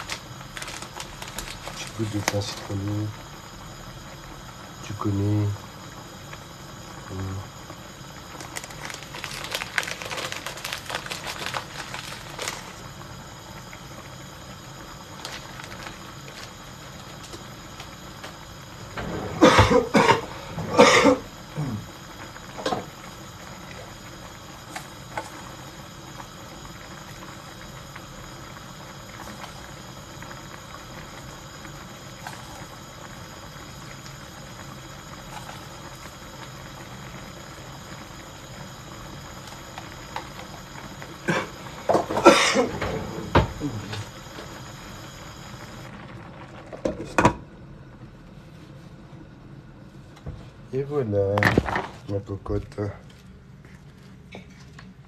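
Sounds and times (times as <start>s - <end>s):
man coughing hard: 19.4s - 21.8s, 41.2s - 42.8s.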